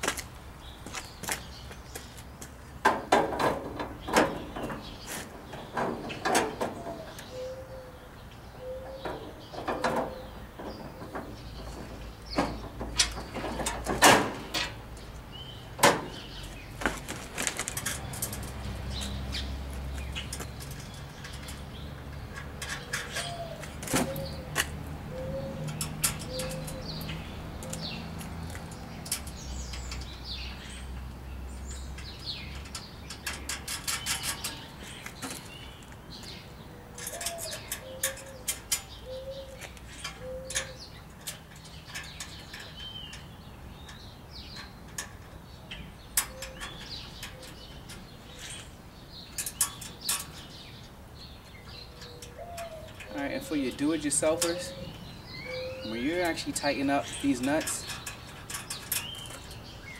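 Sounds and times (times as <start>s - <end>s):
dove cooing: 6.7s - 10.3s, 22.8s - 27.0s, 36.7s - 40.8s, 51.9s - 56.2s.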